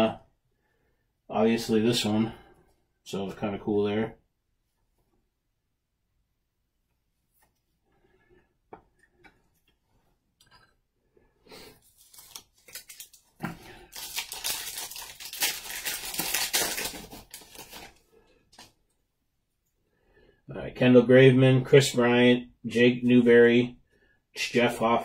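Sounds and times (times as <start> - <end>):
foil wrapper tearing and crinkling: 11.8 - 18.0.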